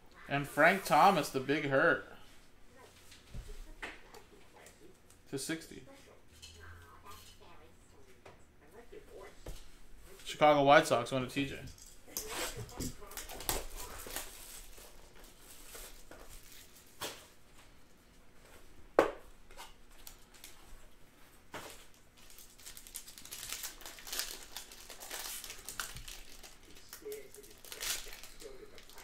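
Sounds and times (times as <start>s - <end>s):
plastic pack crinkling: 12.1s - 17.0s, 21.6s - 29.0s.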